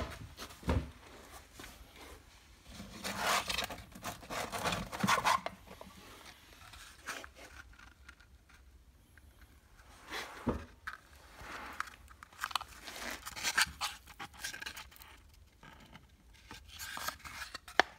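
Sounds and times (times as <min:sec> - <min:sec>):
cardboard boxes scraping and rustling: 0:01.2 - 0:07.6.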